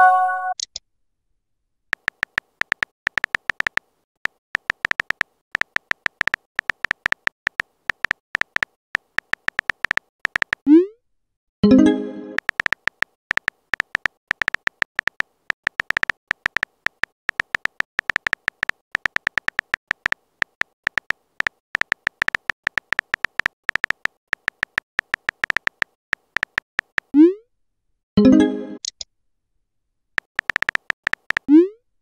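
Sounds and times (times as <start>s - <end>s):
phone keyboard typing clicks: 1.9s - 10.7s, 12.3s - 27.2s, 30.2s - 31.5s.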